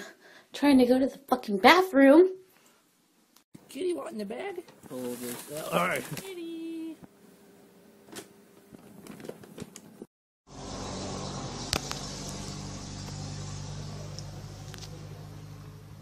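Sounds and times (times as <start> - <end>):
steady hum with hiss: 3.7 - 9.2.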